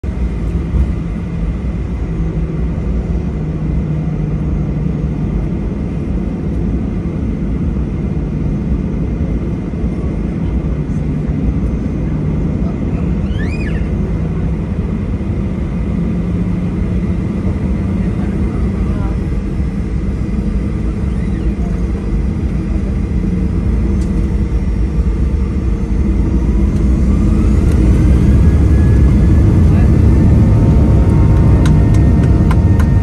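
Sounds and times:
aircraft cabin engine rumble: 0.0s - 33.0s
short high squeak: 13.2s - 14.0s, 21.1s - 21.7s.

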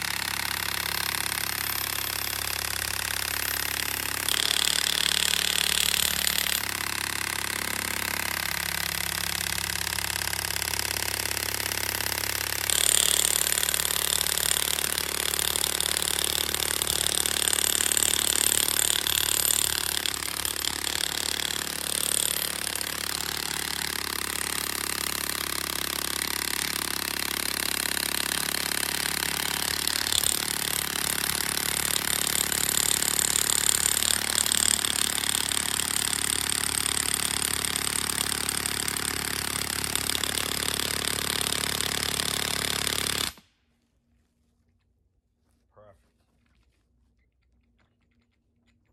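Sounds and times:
impact wrench hammering: 0.0s - 43.4s.

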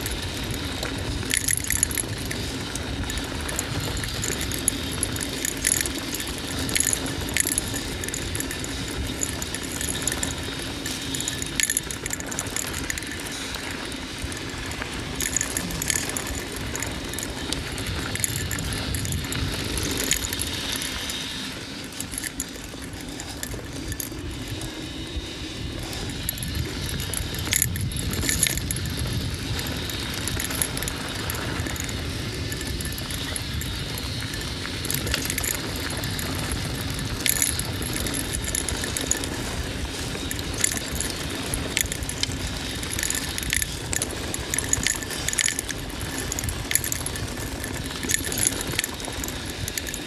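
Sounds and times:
bike chain rattling and clicking: 0.0s - 50.0s
bike tyres rumbling on dirt: 0.0s - 50.0s.

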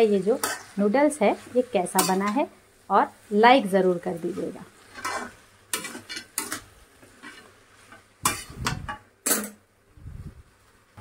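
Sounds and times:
metal spoon clanking on pan: 0.4s - 0.7s, 2.0s - 2.4s, 5.0s - 7.5s, 8.2s - 9.6s.

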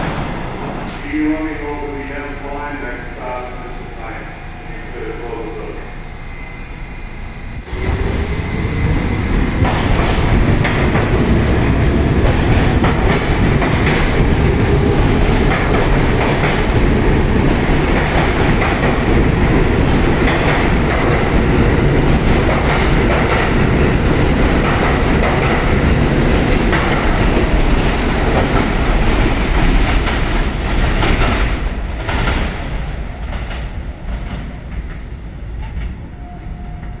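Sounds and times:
subway train motors whining: 0.0s - 37.0s
train wheels clattering on rails: 7.7s - 36.0s.

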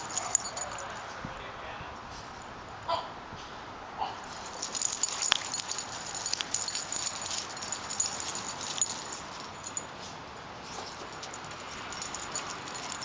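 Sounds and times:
dogs scuffling: 0.0s - 1.0s, 4.3s - 9.9s
metal collar tags jingling: 0.0s - 1.2s, 4.2s - 13.0s.

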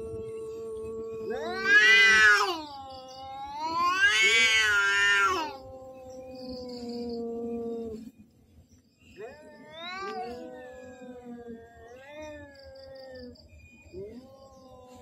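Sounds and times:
cat low steady yowl: 0.0s - 8.1s, 9.2s - 13.4s
cat wails: 1.3s - 2.7s, 3.3s - 5.9s, 9.2s - 13.2s.

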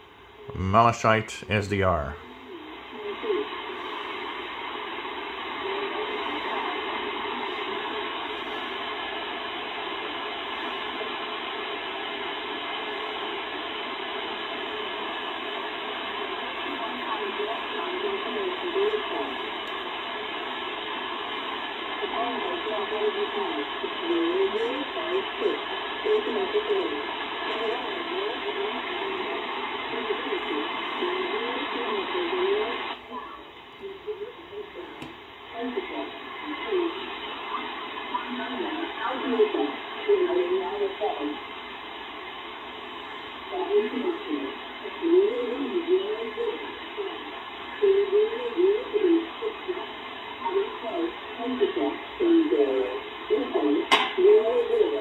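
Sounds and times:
shortwave radio static: 0.0s - 55.0s
radio voice transmission: 0.4s - 8.9s, 16.4s - 19.9s, 21.4s - 33.1s.

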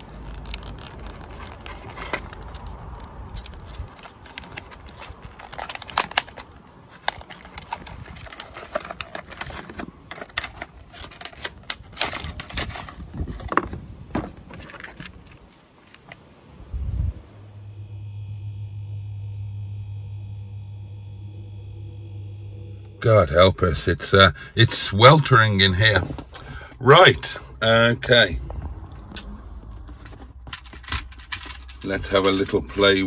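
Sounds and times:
cardboard and plastic packaging rustling: 0.0s - 16.3s, 29.4s - 33.0s
low rumble: 16.6s - 30.4s.

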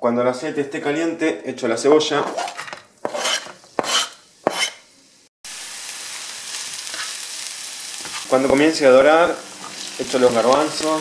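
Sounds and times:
onion scraped into pan: 2.2s - 4.8s, 6.0s - 8.4s
onion sizzling in oil: 3.0s - 11.0s.

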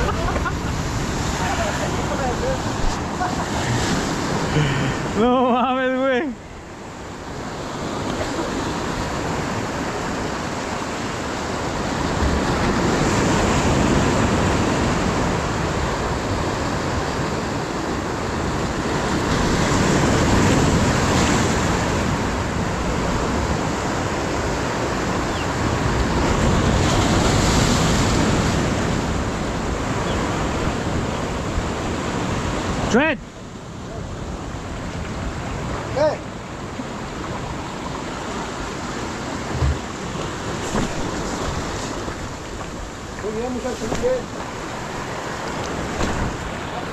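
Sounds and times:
surf breaking on rocks: 37.1s - 46.9s.

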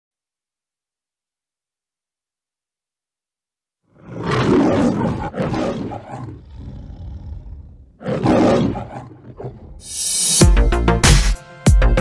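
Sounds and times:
lion roaring: 3.9s - 9.9s.

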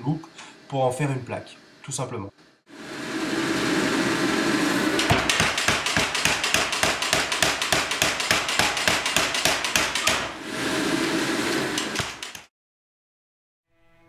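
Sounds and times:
gas forge hissing: 2.6s - 12.4s
power hammer blows on hot steel: 2.7s - 12.5s.

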